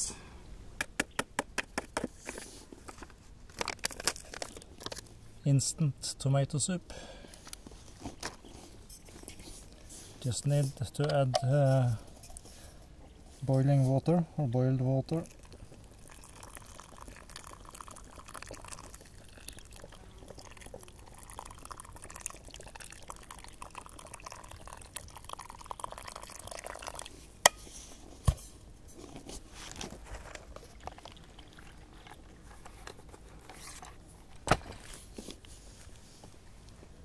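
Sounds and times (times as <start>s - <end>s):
water trickling into bowl: 15.2s - 27.1s.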